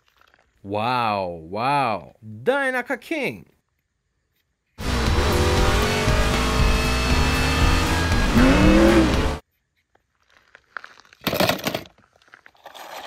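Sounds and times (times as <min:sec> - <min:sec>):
music: 0:04.8 - 0:09.4
race car engine: 0:04.8 - 0:09.4.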